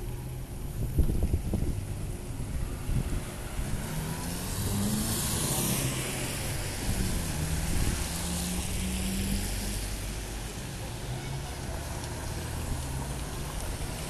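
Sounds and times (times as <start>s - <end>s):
traffic rumble: 0.0s - 14.0s
car driving past: 2.8s - 10.3s.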